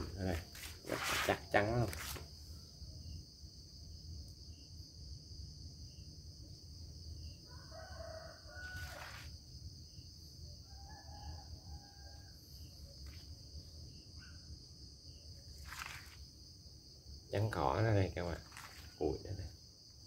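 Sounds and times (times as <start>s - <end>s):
insect chirring: 0.0s - 20.0s
rooster crowing: 7.4s - 9.4s, 10.6s - 12.7s.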